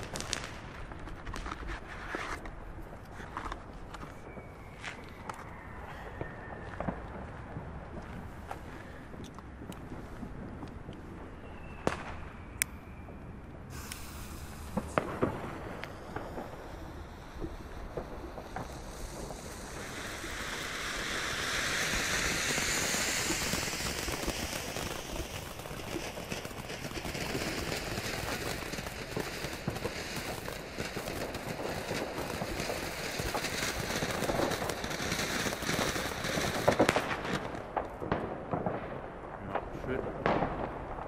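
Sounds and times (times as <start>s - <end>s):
firework crackles: 0.0s - 41.0s
firework hissing sparks: 13.7s - 37.7s.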